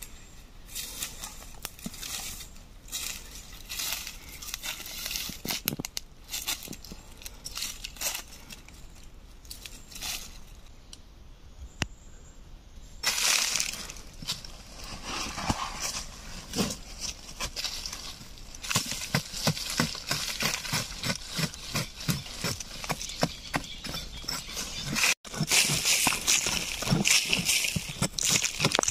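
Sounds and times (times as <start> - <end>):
scraping of dirt and dry leaves: 0.0 - 10.8, 13.0 - 28.9.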